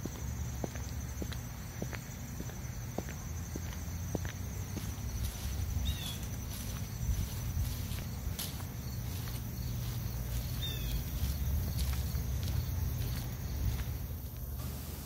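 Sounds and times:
steady low rumble: 0:00.0 - 0:14.8
high falling bird chirps: 0:05.8 - 0:06.4, 0:10.2 - 0:11.5.

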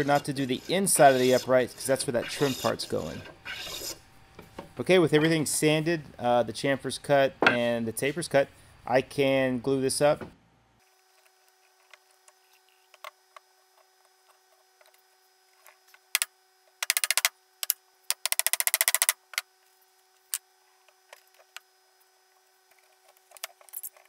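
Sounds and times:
quick rattling clicks: 0:18.1 - 0:19.2.

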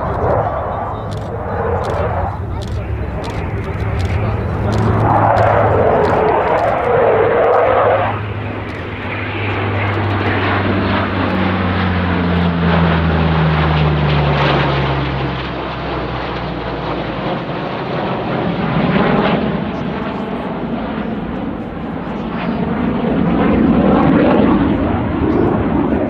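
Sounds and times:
jets rushing: 0:00.0 - 0:12.5
turboprop engines droning: 0:00.0 - 0:26.0.

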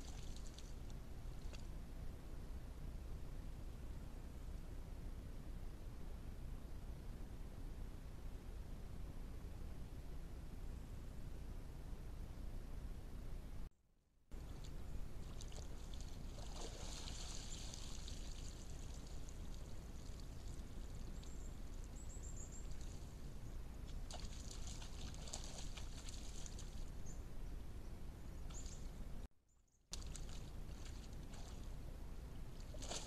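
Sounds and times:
microphone hiss and hum: 0:00.0 - 0:13.7
deer splashing in mud water: 0:14.5 - 0:21.3, 0:23.9 - 0:26.8, 0:29.9 - 0:31.8, 0:32.6 - 0:33.0.

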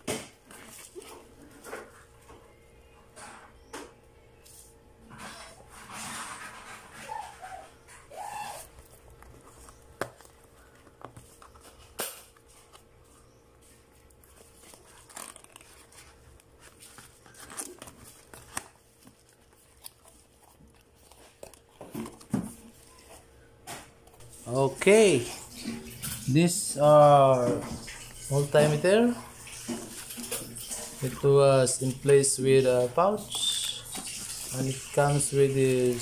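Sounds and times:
cardboard box rustling: 0:08.6 - 0:23.2.

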